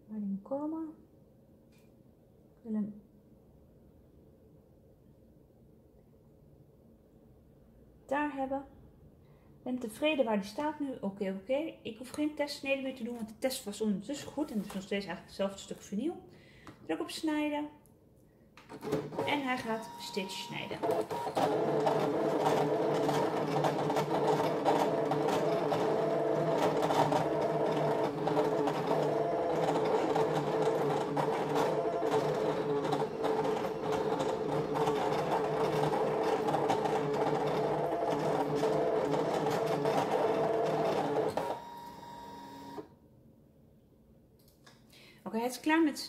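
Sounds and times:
cutting machine motors humming: 0:19.2 - 0:42.8.

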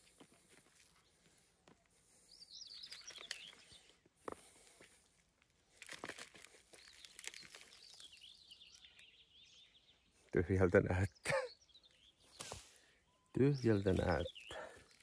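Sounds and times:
bird singing: 0:00.9 - 0:04.1, 0:06.7 - 0:15.0.

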